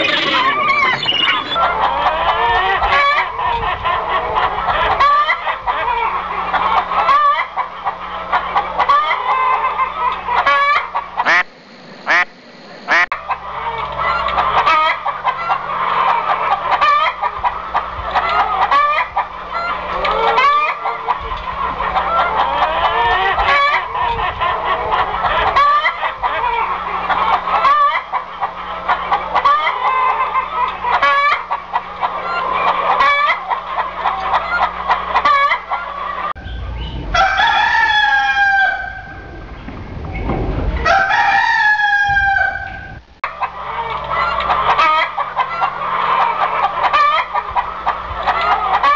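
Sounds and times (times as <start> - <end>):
chickens clucking: 0.0 - 48.9
low steady hum: 0.0 - 48.9
rooster crowing: 12.9 - 17.2, 18.2 - 21.1, 34.1 - 39.4, 40.8 - 43.0, 43.6 - 47.6.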